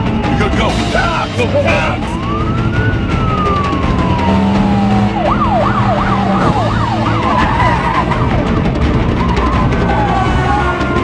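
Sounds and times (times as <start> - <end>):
police siren wailing and yelping: 0.0 - 11.0.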